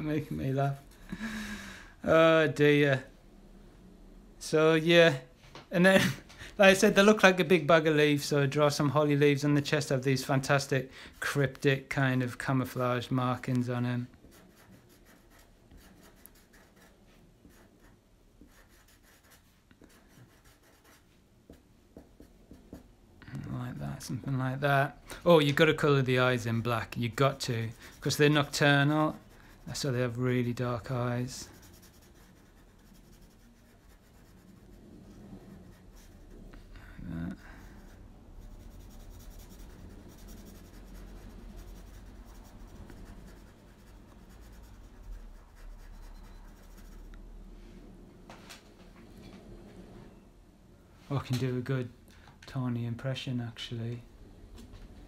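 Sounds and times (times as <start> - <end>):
felt-tip marker scratching paper: 14.2 - 21.0, 31.4 - 36.3, 37.8 - 47.1.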